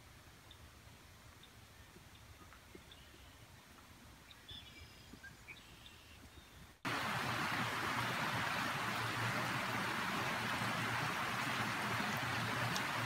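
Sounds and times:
faint bird chirps: 0:04.3 - 0:06.8
creek cascading over waterfall: 0:06.9 - 0:13.0.

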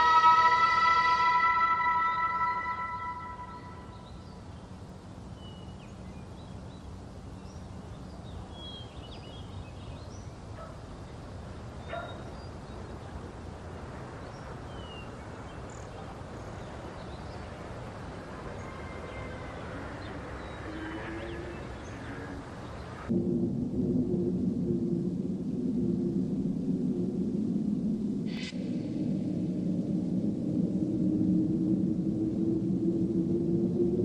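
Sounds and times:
faint bird chirps: 0:00.0 - 0:23.1
low rumble and hiss: 0:00.0 - 0:34.0.

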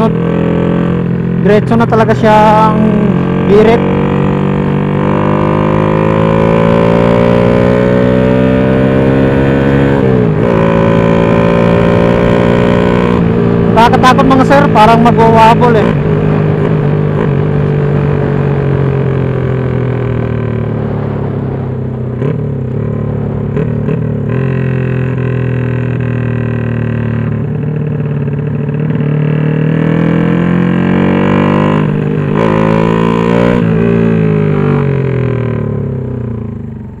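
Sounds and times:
motorcycle engine while riding: 0:00.0 - 0:37.0.

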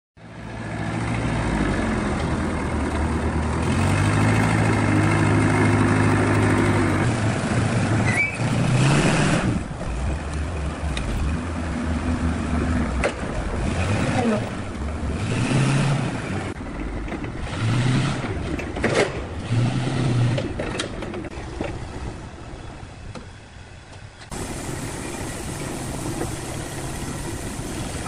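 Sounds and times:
large engine running: 0:00.2 - 0:28.0
hissing burst: 0:24.3 - 0:28.0.

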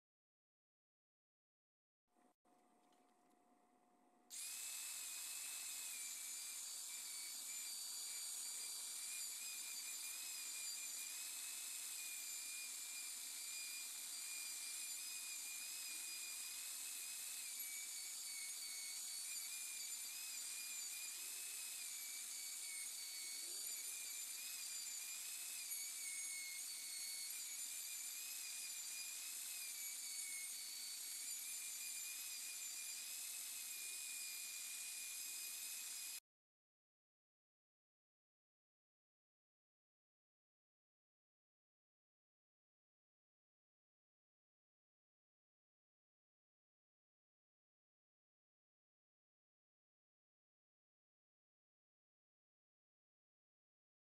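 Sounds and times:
router whining cutting wood: 0:04.3 - 0:36.2.

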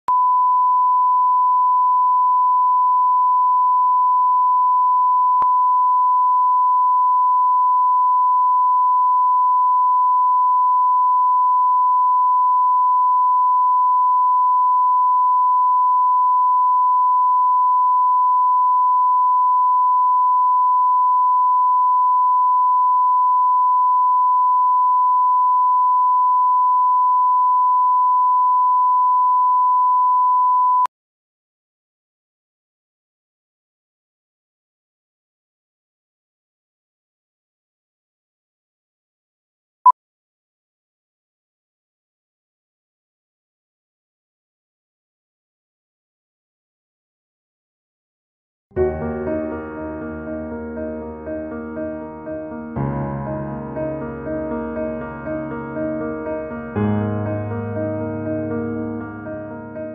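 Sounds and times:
steady high test tone beep: 0:03.7 - 0:30.9.

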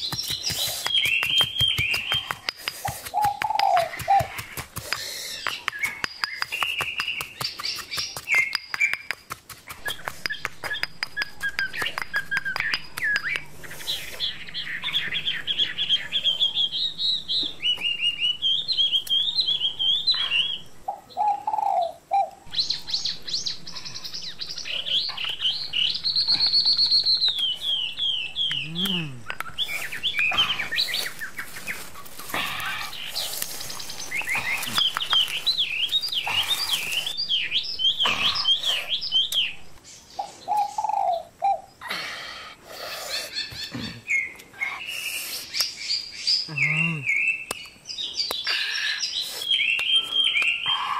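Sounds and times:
pestle pounding in stone mortar: 0:00.0 - 0:13.5
birds chirping and twittering: 0:00.0 - 0:50.9.

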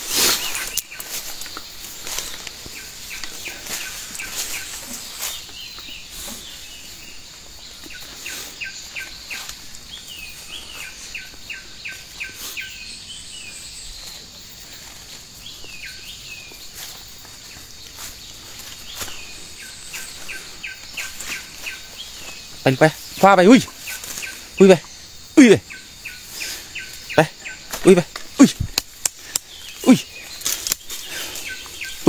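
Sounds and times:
footsteps through undergrowth: 0:00.0 - 0:25.0, 0:26.0 - 0:32.0
high insect buzz: 0:00.0 - 0:32.0.

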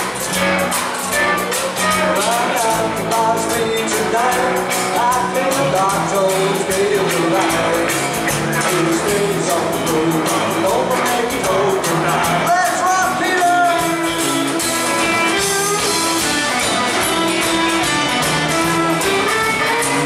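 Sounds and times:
live country band playing: 0:00.0 - 0:20.0
lead vocal singing: 0:02.0 - 0:14.2.

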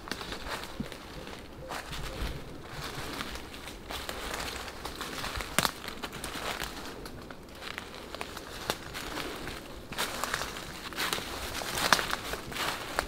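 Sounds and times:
footsteps crunching through dry leaves: 0:00.0 - 0:13.0
twigs snapping: 0:02.9 - 0:13.0.

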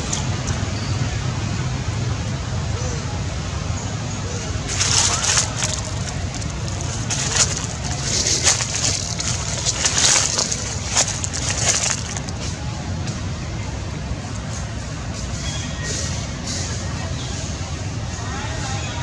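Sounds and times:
rustling and crackling: 0:04.6 - 0:13.2.

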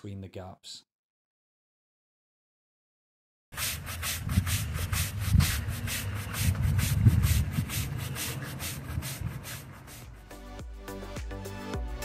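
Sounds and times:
push broom sweeping sand: 0:03.6 - 0:10.5.

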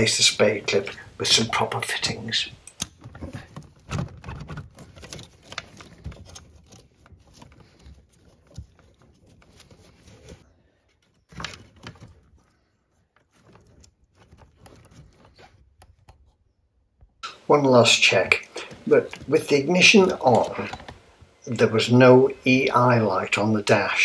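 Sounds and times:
wires and connectors clicking: 0:02.5 - 0:10.3, 0:17.2 - 0:21.4.

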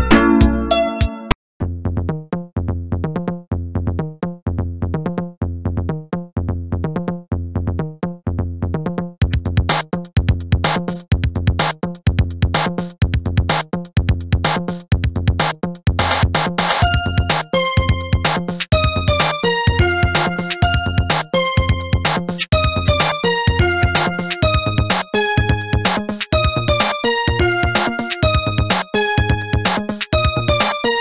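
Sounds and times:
drum machine beat: 0:09.2 - 0:31.0
electronic tracker music: 0:09.2 - 0:31.0
beeping synthesizer notes: 0:16.8 - 0:31.0.

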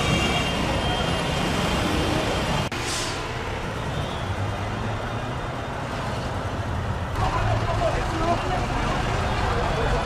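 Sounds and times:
street traffic rumble: 0:00.0 - 0:10.0
short hiss: 0:02.8 - 0:03.3.

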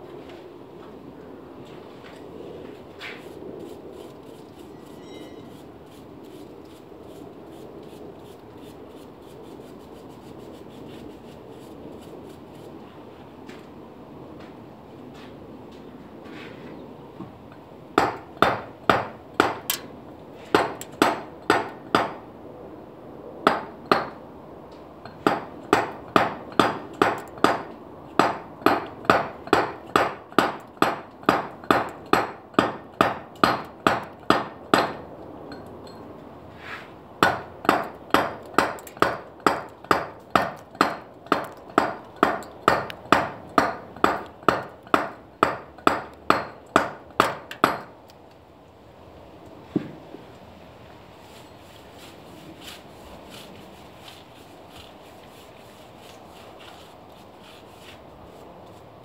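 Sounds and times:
mallet striking chisel into stone: 0:25.2 - 0:35.0, 0:37.2 - 0:47.9.

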